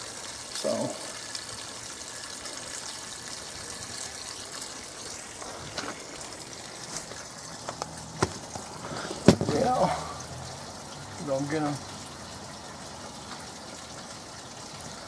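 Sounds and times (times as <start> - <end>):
garden hose water rushing: 0.0 - 15.0.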